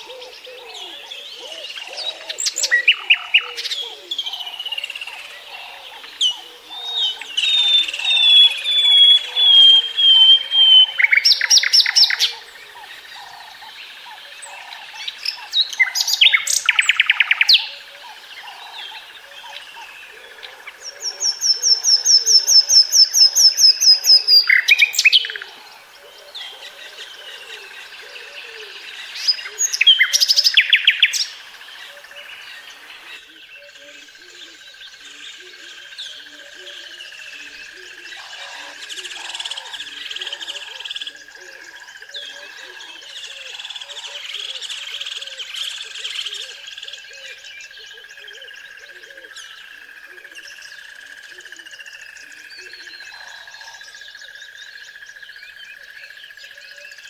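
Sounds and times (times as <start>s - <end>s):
faint lower bird calls: 0.0s - 57.0s
nightingale singing: 0.0s - 57.0s.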